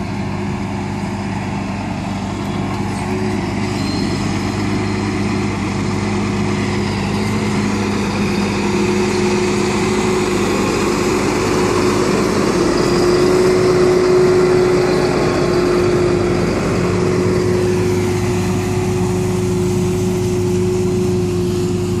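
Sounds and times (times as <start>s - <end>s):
tractor engine running: 0.0s - 22.0s.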